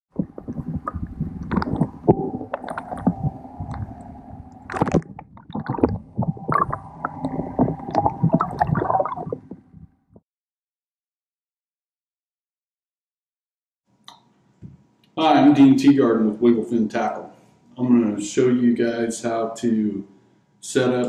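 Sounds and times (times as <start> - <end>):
steady hum: 0.1 - 9.9
water gurgling underwater: 0.1 - 10.0.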